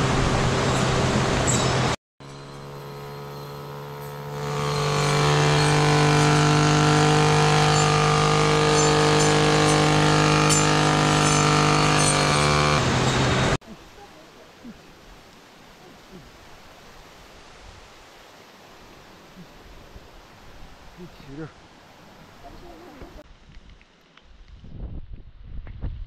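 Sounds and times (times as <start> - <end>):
brush cutter engine revving: 2.2 - 13.6.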